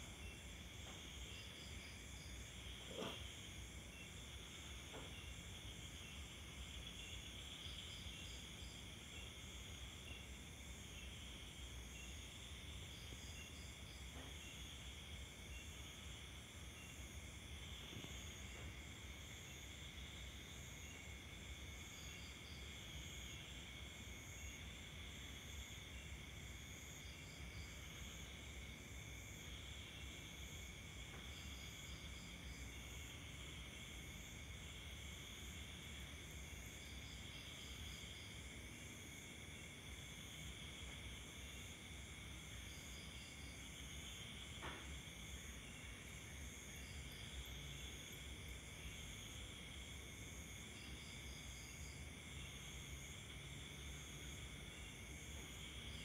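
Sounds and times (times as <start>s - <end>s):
insect chirps: 0.0s - 56.0s.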